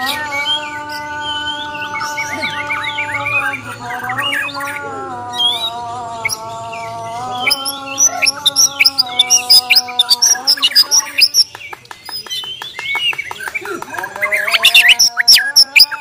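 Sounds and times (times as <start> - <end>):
bird whistled song: 7.3 - 13.6, 14.2 - 16.0.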